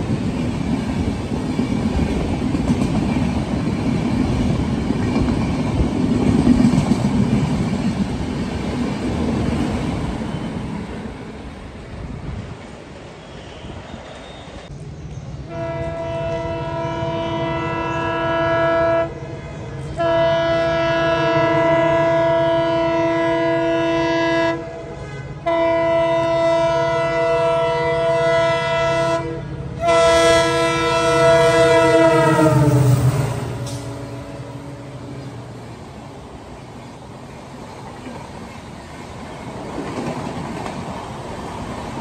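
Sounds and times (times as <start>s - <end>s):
passing train rumble: 0.0s - 42.0s
locomotive horn blasts: 15.5s - 19.2s, 19.9s - 35.5s.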